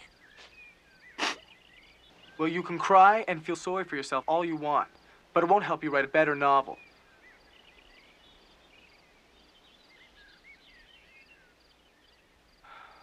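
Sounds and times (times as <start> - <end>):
birds chirping and whistling: 0.0 - 3.0, 6.7 - 12.4.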